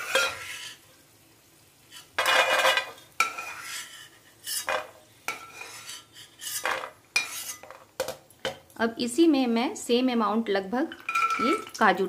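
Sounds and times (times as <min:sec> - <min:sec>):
steel spoon scraping metal pan: 0:00.0 - 0:00.8, 0:01.9 - 0:07.8.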